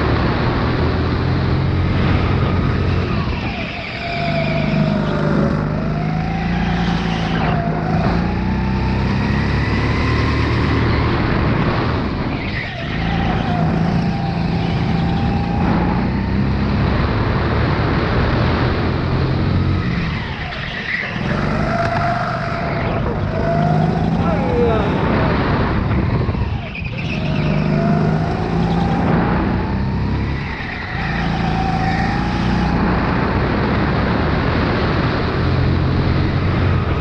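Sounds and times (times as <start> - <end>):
kart engine revving: 0.0 - 37.0.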